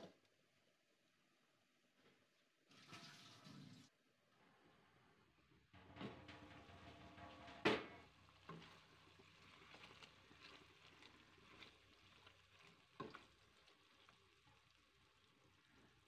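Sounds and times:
wooden spoon stirring in pot: 0:06.0 - 0:16.0.

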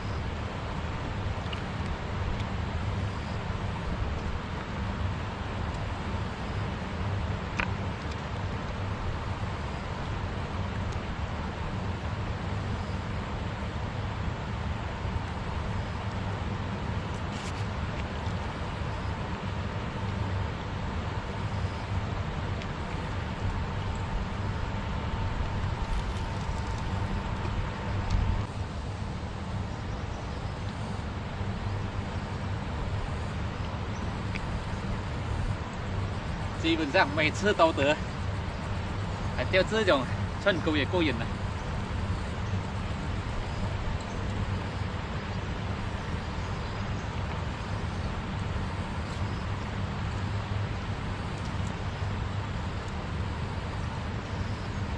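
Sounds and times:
river flowing: 0:00.0 - 0:54.9
wind buffeting microphone: 0:23.2 - 0:29.6.

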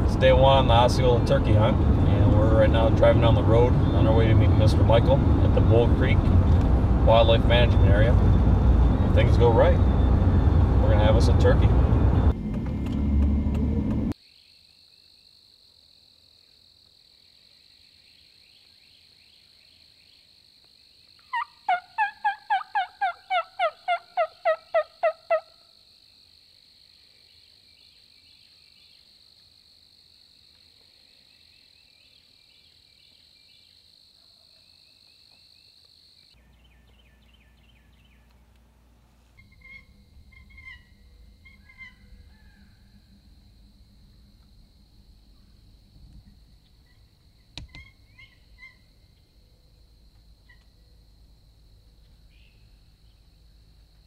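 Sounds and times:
low rumble: 0:00.0 - 0:14.2, 0:36.8 - 0:50.0
turkey yelps: 0:21.3 - 0:25.6, 0:39.4 - 0:42.8.

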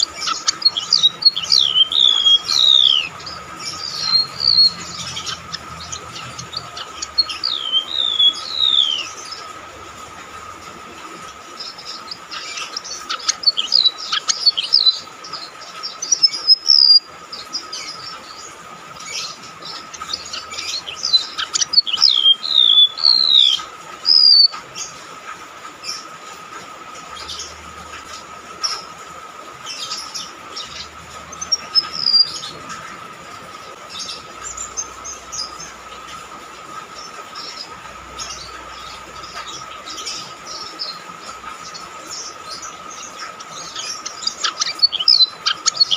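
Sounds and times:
bird singing shrill whistled notes: 0:00.0 - 0:09.3, 0:20.2 - 0:24.5
steady high-pitched hum: 0:00.0 - 0:45.9.

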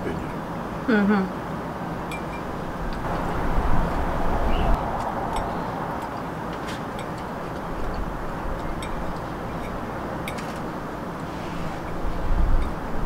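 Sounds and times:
steady outdoor rumble: 0:00.0 - 0:13.0
forks clicking on ceramic plates: 0:07.0 - 0:10.7.

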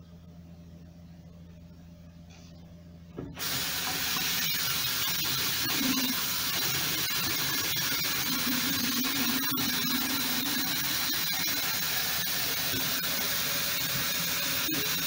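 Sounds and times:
water running into sink: 0:03.4 - 0:15.0.

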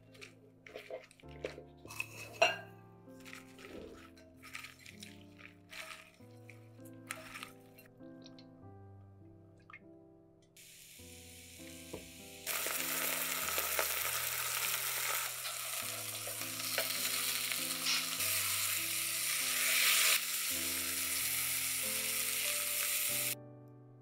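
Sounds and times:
soft background music: 0:00.0 - 0:24.0
vegetables sizzling in hot oil: 0:10.6 - 0:23.4.

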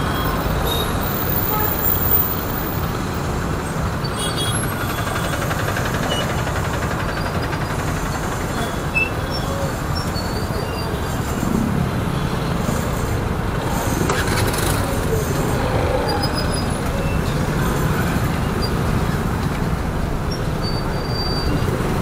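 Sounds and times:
motorcycle riding in traffic: 0:00.0 - 0:22.0
other vehicles: 0:00.0 - 0:22.0
wind and road noise: 0:00.0 - 0:22.0.

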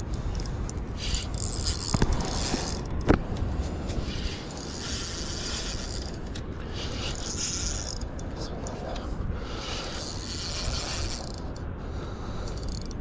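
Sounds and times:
spinning reel being cranked: 0:00.3 - 0:02.9, 0:04.0 - 0:08.2, 0:09.6 - 0:11.6, 0:12.5 - 0:13.0.

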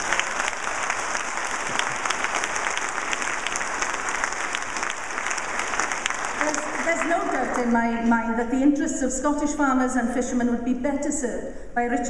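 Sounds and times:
audience applauding: 0:00.0 - 0:07.8.

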